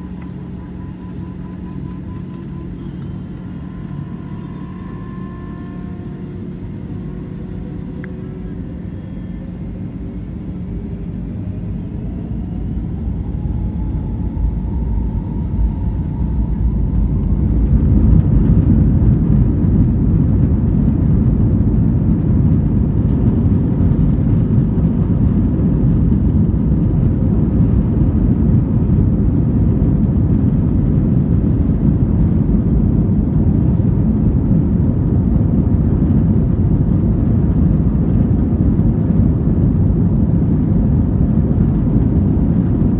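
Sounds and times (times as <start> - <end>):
jet engines whining: 0.0 - 42.9
loud steady engine rumble: 0.0 - 42.9.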